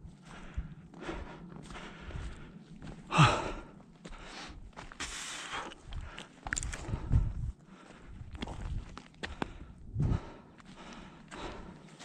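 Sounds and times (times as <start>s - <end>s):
footsteps on stony ground: 0.0s - 12.0s.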